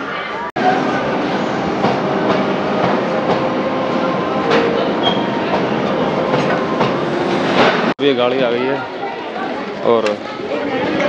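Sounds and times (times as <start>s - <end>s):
train wheels rumbling on track: 0.6s - 8.0s.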